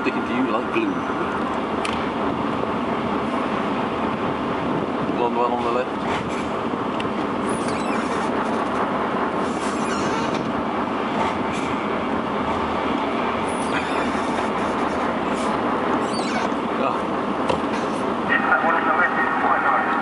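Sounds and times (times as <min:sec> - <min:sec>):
truck engine and tyres droning: 0:00.0 - 0:20.0.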